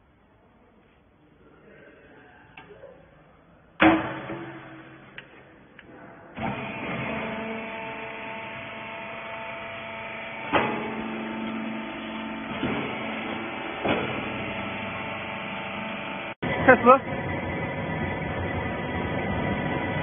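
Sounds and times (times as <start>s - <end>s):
machine clunk: 3.8s - 5.5s, 10.3s - 15.4s
electric motor and pump humming: 6.4s - 20.0s
baler lid banging shut: 12.6s - 14.4s.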